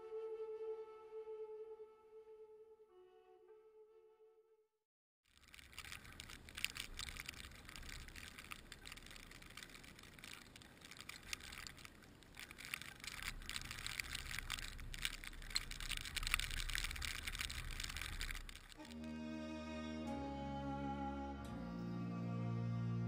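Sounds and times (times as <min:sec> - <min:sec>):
crackling ticks: 0:05.3 - 0:19.1.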